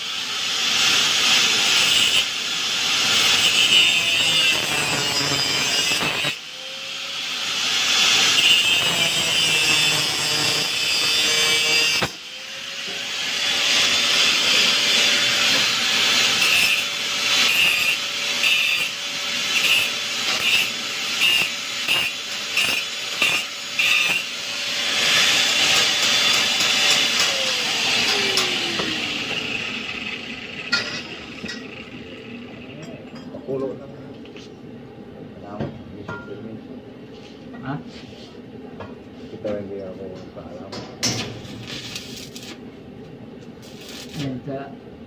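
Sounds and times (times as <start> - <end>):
power tool motor whine: 0.0 - 32.8.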